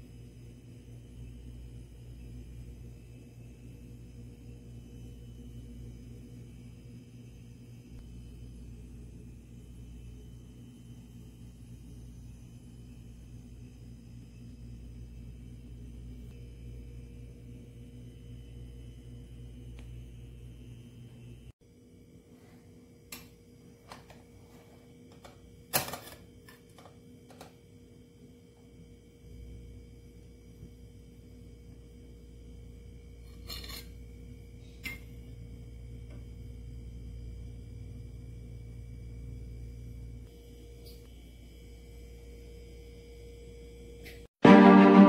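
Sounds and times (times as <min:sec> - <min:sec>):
faint steady hum: 0:00.0 - 0:45.0
utensils clinking on dishes: 0:33.3 - 0:34.0.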